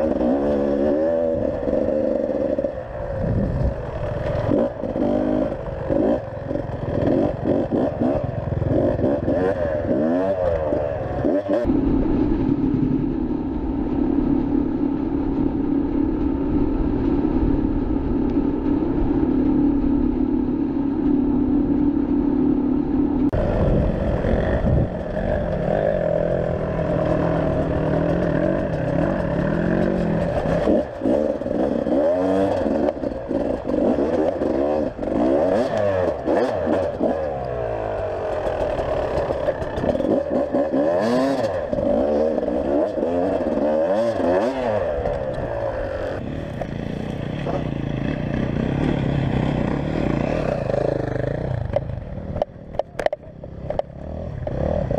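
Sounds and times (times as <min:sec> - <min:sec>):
dirt bike engine revving: 0:00.0 - 0:11.7, 0:23.3 - 0:54.9.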